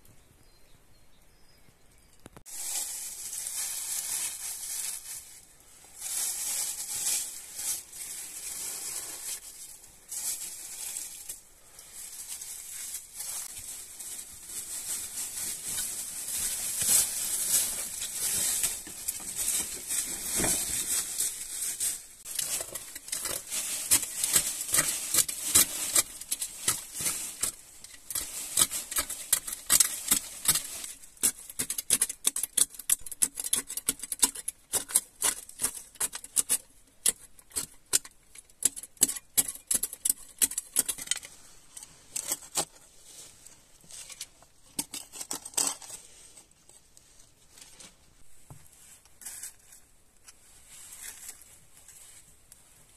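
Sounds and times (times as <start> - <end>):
dry leaves rustling: 2.5 - 31.5, 47.4 - 52.5
hand shovel digging gritty soil: 14.6 - 33.8.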